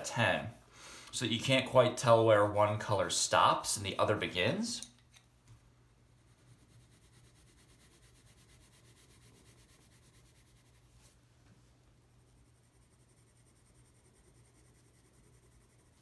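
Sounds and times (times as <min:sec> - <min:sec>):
pencil scratching on paper: 0:06.1 - 0:11.2, 0:12.3 - 0:16.0.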